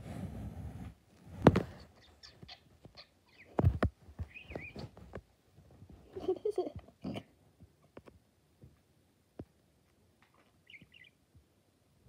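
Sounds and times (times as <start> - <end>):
sharp thumps and knocks: 1.3 - 1.8, 2.8 - 5.2
parakeet chirping: 1.9 - 3.6, 4.3 - 4.8, 10.6 - 11.2.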